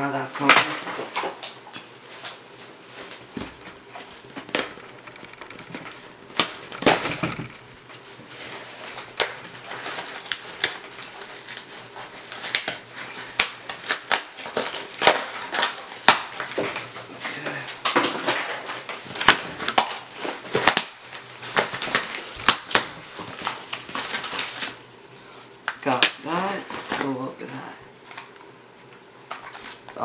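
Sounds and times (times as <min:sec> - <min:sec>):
plastic packaging crinkling: 0:03.6 - 0:25.0.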